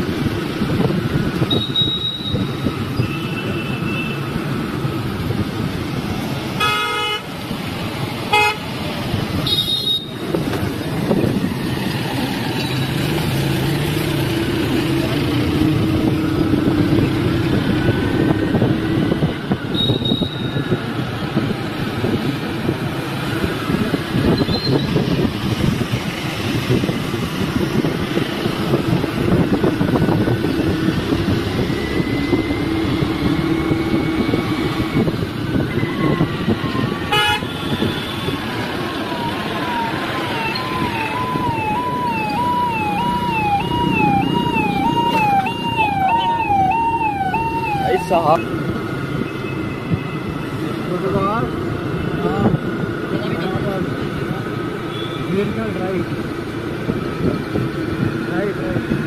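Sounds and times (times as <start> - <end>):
wind rush: 0.0 - 1.7, 10.2 - 12.6, 13.2 - 49.2
horn toots: 37.1 - 38.2
scooter engine: 38.4 - 48.0
warbling siren-like horn: 39.2 - 48.4.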